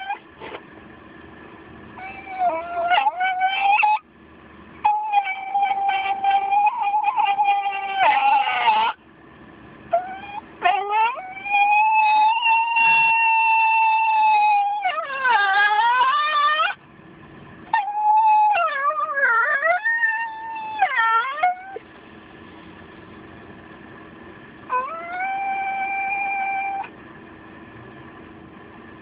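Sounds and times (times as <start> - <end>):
dog howling: 2.0 - 4.0, 4.8 - 9.0, 9.9 - 16.8, 17.7 - 21.8, 24.7 - 26.9.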